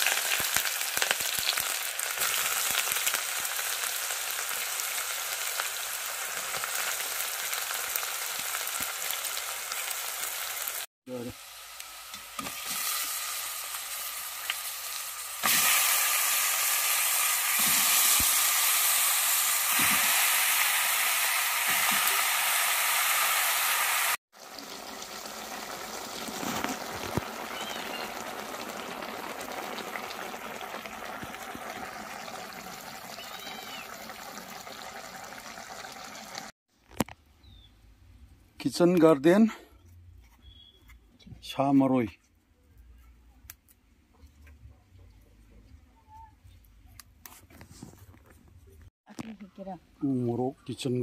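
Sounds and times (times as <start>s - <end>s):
meat sizzling in hot oil: 0.0s - 36.6s.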